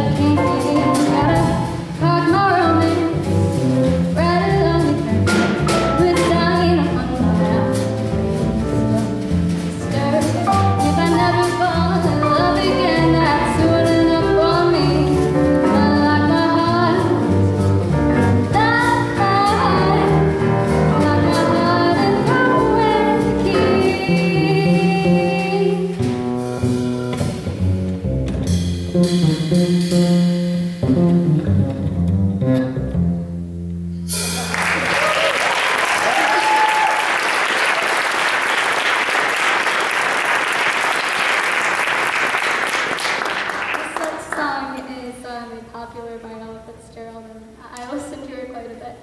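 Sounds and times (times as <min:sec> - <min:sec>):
woman singing jazz: 0:00.0 - 0:26.2
upright double bass: 0:00.0 - 0:36.8
drum kit: 0:00.0 - 0:43.2
piano: 0:00.0 - 0:49.0.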